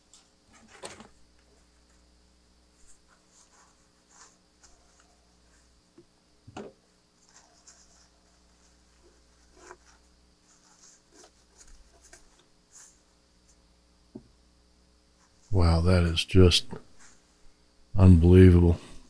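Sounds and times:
paper towel scratching and rustling: 0.5s - 5.8s, 7.1s - 13.2s.

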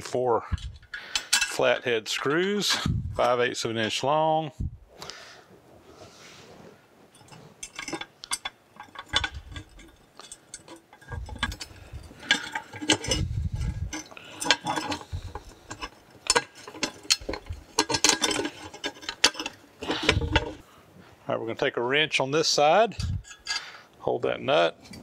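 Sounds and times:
screws clinking on a metal plate: 0.8s - 1.6s, 7.2s - 20.6s.

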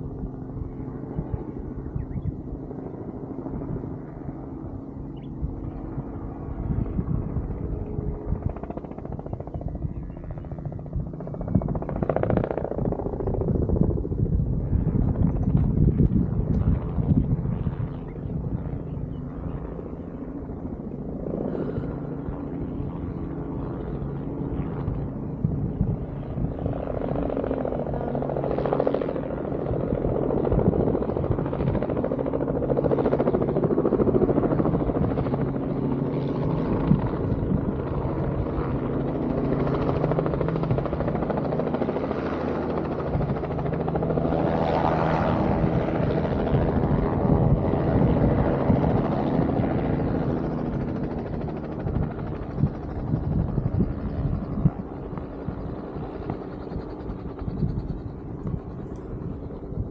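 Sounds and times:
low engine drone: 10.9s - 23.3s.

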